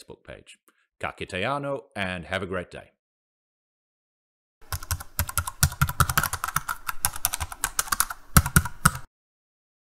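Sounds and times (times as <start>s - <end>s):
rapid keyboard typing: 4.6s - 9.1s.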